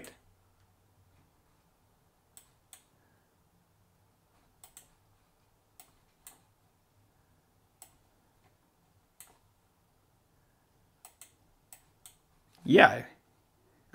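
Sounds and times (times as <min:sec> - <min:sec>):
computer mouse clicks: 0:02.3 - 0:02.9, 0:04.5 - 0:05.1, 0:05.7 - 0:06.5, 0:07.8 - 0:08.6, 0:09.2 - 0:09.5, 0:11.0 - 0:12.3.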